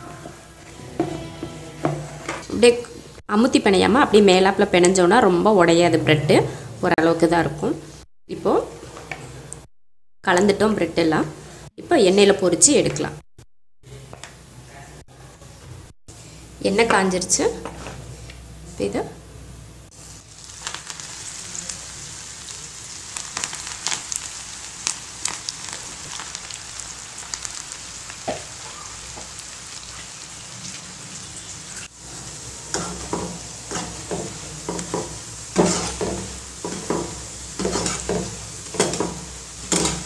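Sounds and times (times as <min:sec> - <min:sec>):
metal spatula scraping pan: 0:00.0 - 0:02.4, 0:32.1 - 0:40.0
batter sizzling in hot oil: 0:19.9 - 0:40.0.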